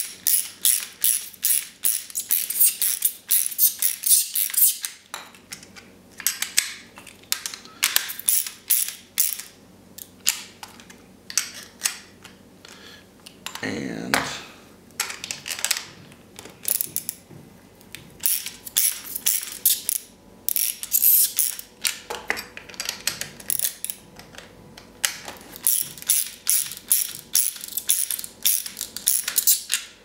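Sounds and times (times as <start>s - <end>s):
ratchet wrench clicking: 0.0s - 4.9s, 8.1s - 9.5s, 18.2s - 21.6s, 25.6s - 29.8s.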